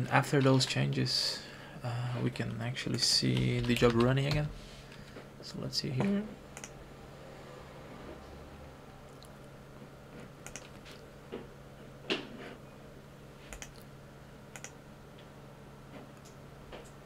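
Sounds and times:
computer mouse clicks: 0:06.6 - 0:06.8, 0:10.4 - 0:10.8, 0:13.5 - 0:13.9, 0:14.5 - 0:14.8.

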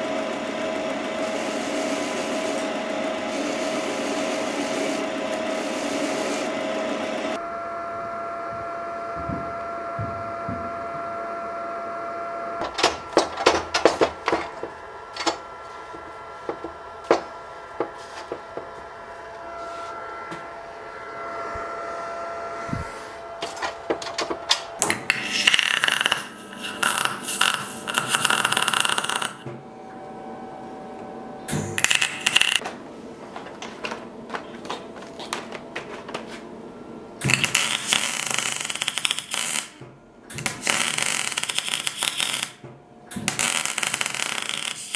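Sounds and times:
welding arc crackling: 0:00.0 - 0:07.4, 0:23.3 - 0:29.5, 0:31.5 - 0:32.6, 0:37.2 - 0:44.9.

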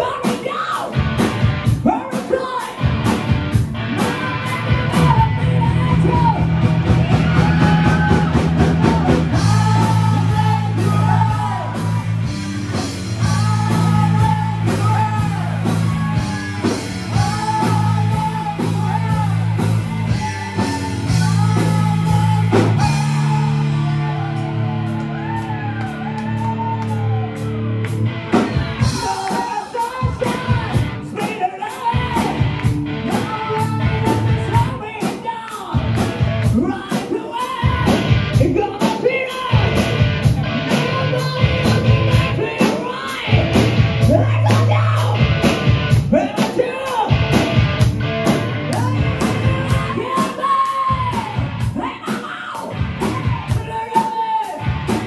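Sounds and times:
rock band playing: 0:00.0 - 0:55.0
person singing: 0:03.9 - 0:12.1, 0:12.8 - 0:27.4, 0:28.4 - 0:45.4, 0:48.7 - 0:55.0
drum beat with cymbal hits: 0:28.3 - 0:55.0.

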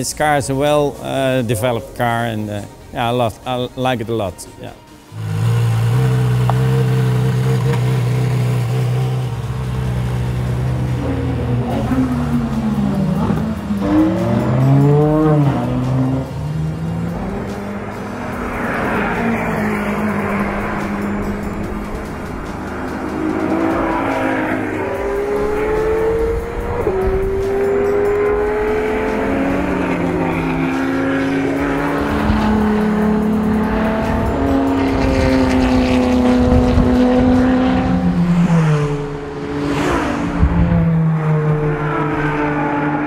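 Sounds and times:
car engine revving high: 0:05.1 - 0:43.0.

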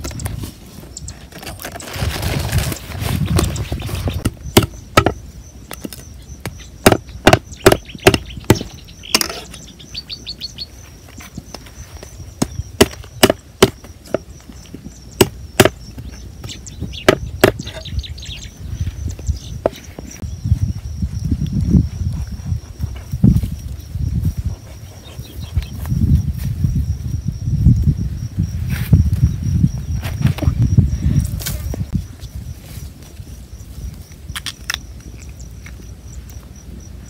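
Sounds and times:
rustling: 0:00.0 - 0:04.2
birds chirping faintly: 0:00.0 - 0:26.8, 0:27.6 - 0:37.0
machete chopping into wood: 0:04.2 - 0:05.2, 0:12.4 - 0:14.2.

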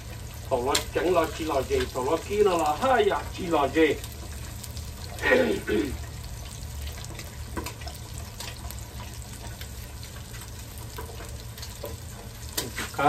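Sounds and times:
fish sizzling in hot oil: 0:00.0 - 0:13.0
oil spattering pops: 0:11.7 - 0:13.0.

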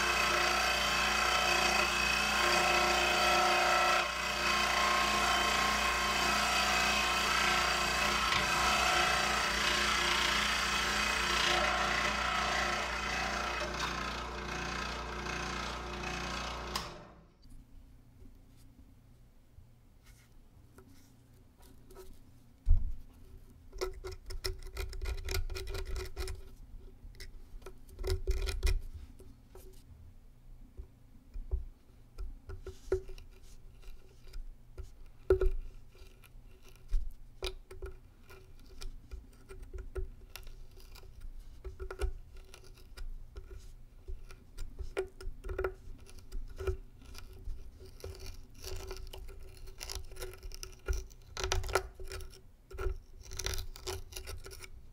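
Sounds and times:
knife blade scraping cardboard tube: 0:37.8 - 0:54.8.

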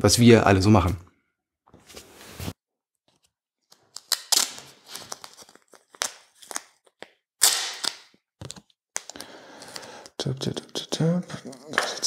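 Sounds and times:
playing cards rustling: 0:01.8 - 0:10.1.

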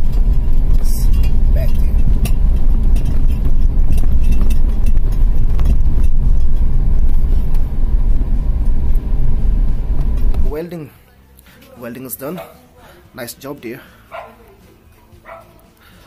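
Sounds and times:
car cabin road and engine rumble: 0:00.0 - 0:10.9.

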